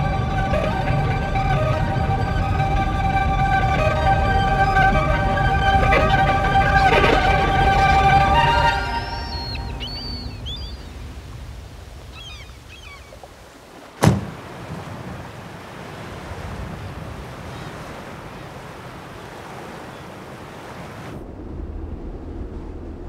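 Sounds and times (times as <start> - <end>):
wind across open ground: 0.0 - 23.0
faint bird chirps: 7.8 - 11.1, 12.1 - 13.2
sharp thud: 14.0 - 14.4.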